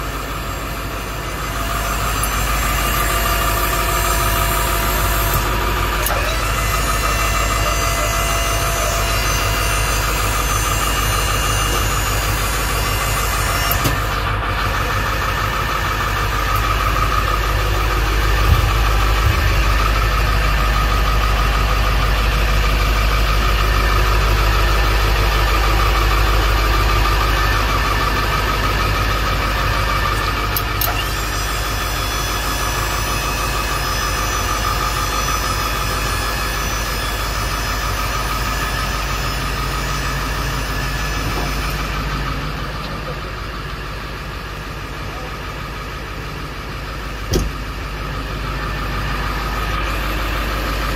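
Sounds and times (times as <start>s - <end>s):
truck engine idling: 0.0s - 50.9s.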